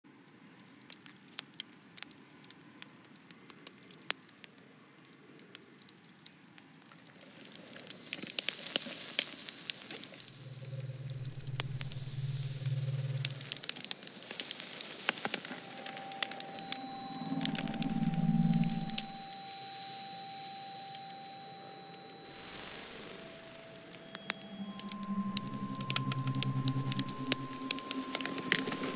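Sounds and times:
fire crackling and popping: 0.6 - 28.9
steady tones: 10.3 - 13.7, 15.3 - 28.9
deep steady hum: 10.4 - 13.5, 15.6 - 28.9.

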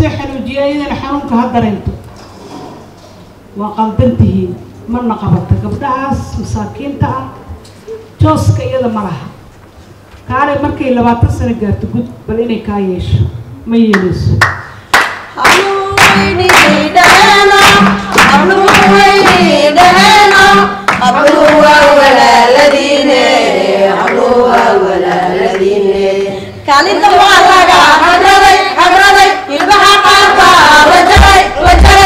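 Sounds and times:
hands clapping in rhythm: 14.0 - 21.8, 24.0 - 26.3
woman singing into a microphone: 15.4 - 22.8, 25.2 - 32.0.

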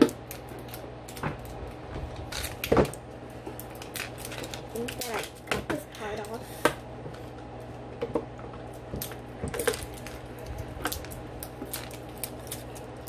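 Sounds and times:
fingers peeling plastic wrapper: 0.0 - 6.4, 8.9 - 13.0
steady low hum: 0.0 - 13.0.

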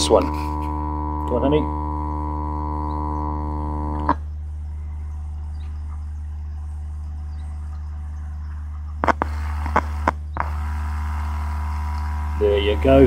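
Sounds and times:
speaker connection crackling clicks: 0.0 - 4.2, 8.5 - 12.3
buzzy tone: 0.0 - 5.0, 7.0 - 13.0
low mains hum: 0.0 - 13.0.

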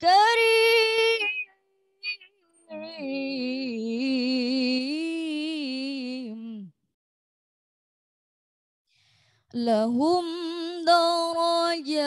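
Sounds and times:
woman reciting melodically: 0.0 - 6.7, 9.6 - 12.0.

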